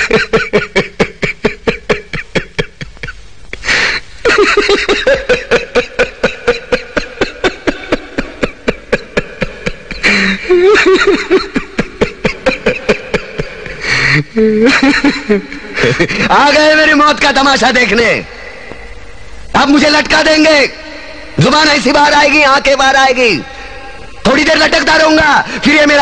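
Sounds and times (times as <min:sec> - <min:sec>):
man laughing hard: 0:00.0 - 0:16.4.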